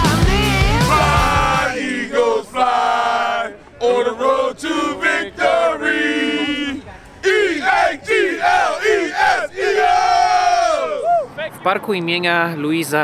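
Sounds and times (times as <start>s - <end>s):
intro music: 0.0s - 2.1s
men chanting together: 0.7s - 11.0s.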